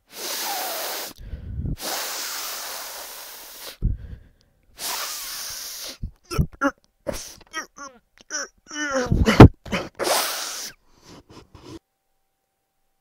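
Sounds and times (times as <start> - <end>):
man sniffing hard through nose: 0.0 - 4.1, 4.8 - 6.2, 7.1 - 7.5, 9.7 - 11.8
low rumbles: 1.2 - 1.8
short vocal sounds: 4.8 - 11.8.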